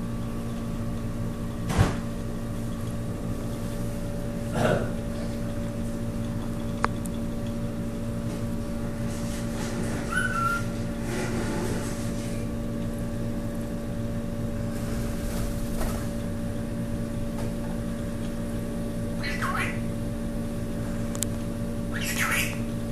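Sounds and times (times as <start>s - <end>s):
aquarium equipment hum: 0.0s - 22.9s.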